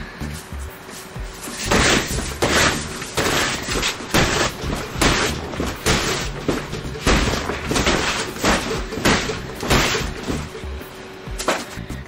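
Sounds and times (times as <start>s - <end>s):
broom slapping plastic wall: 0.9s - 10.5s.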